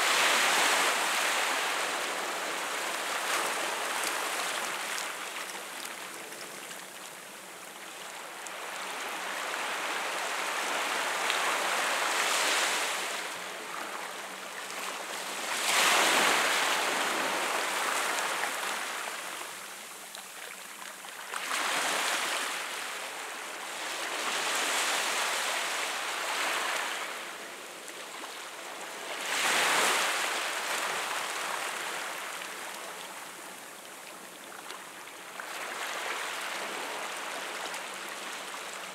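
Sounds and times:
waves washing over rocks: 0.0 - 5.8, 15.4 - 19.4.

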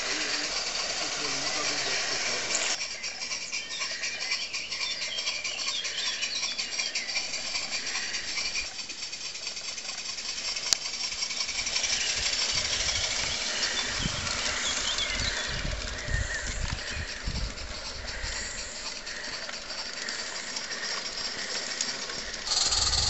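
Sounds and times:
hiss of steam: 0.0 - 2.8
low rumble of passing train: 0.0 - 23.0
steam locomotive chuffing: 0.0 - 23.0.

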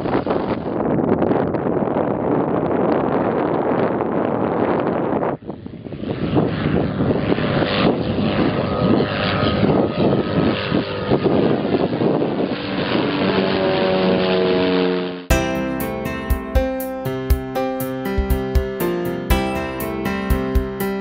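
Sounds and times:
propeller plane engine drone: 5.2 - 15.3
music: 15.3 - 21.0.

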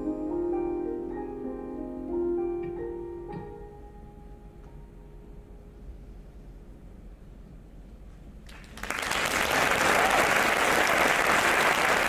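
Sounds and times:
audience applause: 8.5 - 12.0.

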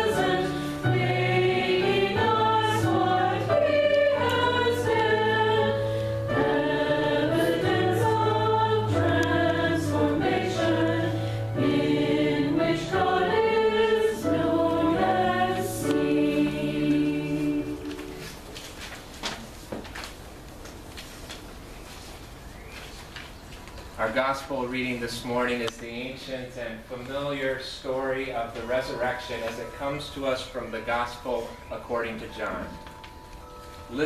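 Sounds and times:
keyboard chords: 0.0 - 18.5
voices singing a hymn: 0.0 - 18.5.

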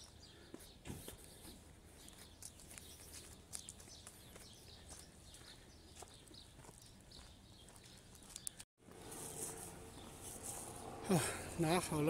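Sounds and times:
faint footsteps: 0.0 - 10.9
small ticks: 8.3 - 8.6.

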